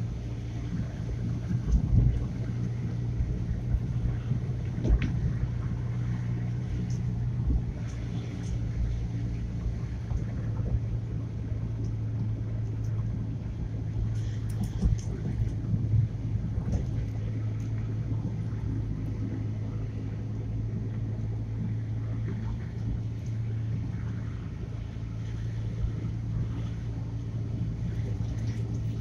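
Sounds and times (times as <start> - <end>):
car engine and tyre drone: 0.0 - 29.0.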